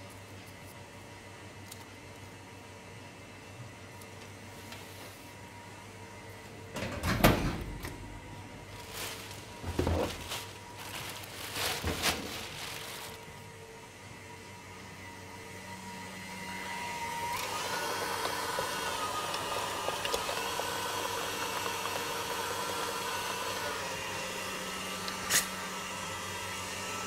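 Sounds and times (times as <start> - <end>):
stand mixer motor humming: 13.2 - 27.0.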